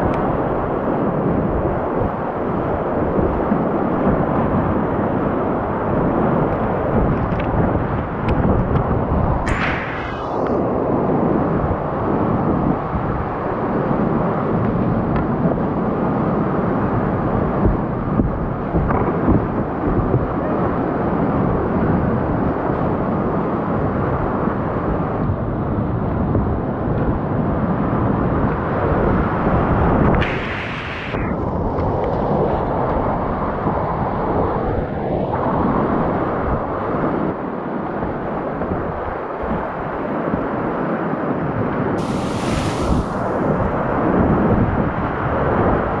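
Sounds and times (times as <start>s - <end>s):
sharp hiss: 9.5s - 10.6s, 30.2s - 31.3s, 42.0s - 43.4s.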